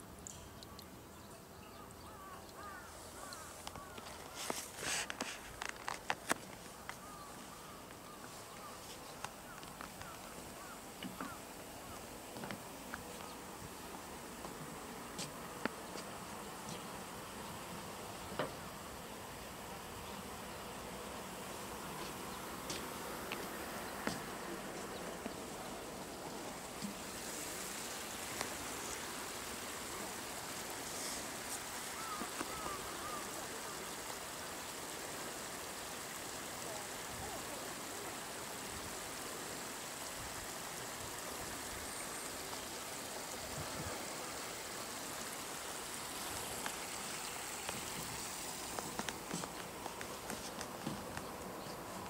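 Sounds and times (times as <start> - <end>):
flowing water rushing: 0.0 - 19.6, 20.8 - 52.0
faint clicks: 2.4 - 7.2, 7.8 - 10.3.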